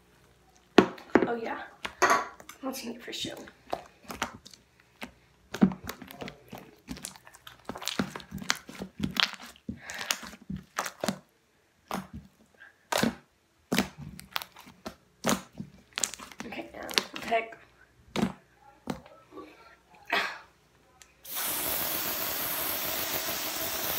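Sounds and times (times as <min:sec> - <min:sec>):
slime squishing: 0:03.2 - 0:17.4.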